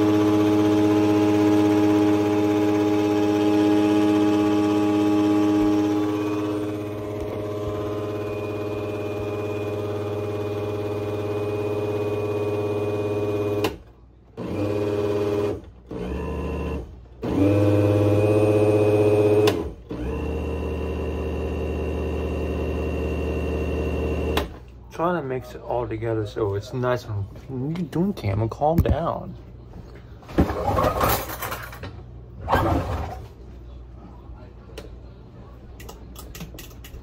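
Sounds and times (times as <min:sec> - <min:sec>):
blender motor whining: 0:00.0 - 0:13.8, 0:14.4 - 0:24.5.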